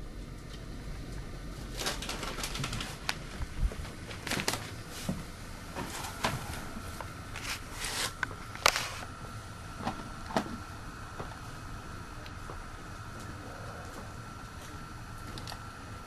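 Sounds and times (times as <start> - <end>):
faint high whine: 0.0 - 16.0
camcorder handling noise: 7.4 - 9.1.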